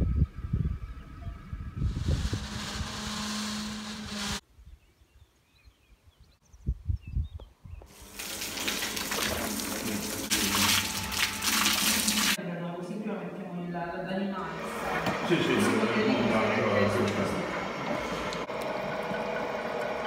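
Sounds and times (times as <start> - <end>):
low hum: 0.0 - 4.4
milk gushing from a hose: 7.9 - 12.4.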